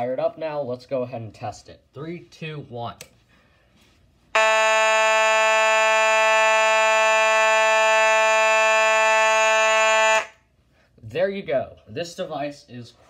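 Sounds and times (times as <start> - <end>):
fire alarm horn buzzing: 4.3 - 10.6.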